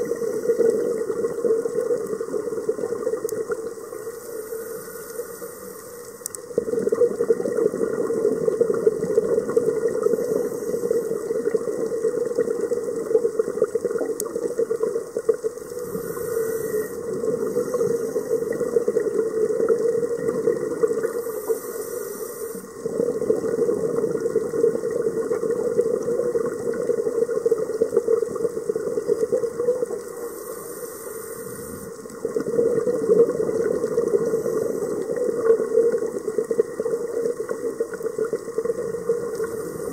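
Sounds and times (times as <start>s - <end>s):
exhaled bubbles underwater: 0.0s - 39.9s
regulator inhalation hiss: 3.8s - 6.0s, 10.0s - 11.3s, 15.7s - 18.6s, 21.0s - 22.8s, 30.2s - 32.0s.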